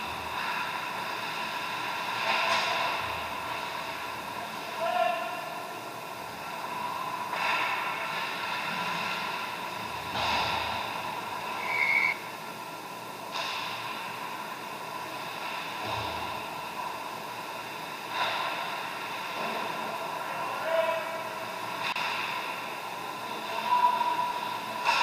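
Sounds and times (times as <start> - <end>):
rink hum: 11.4 - 12.4.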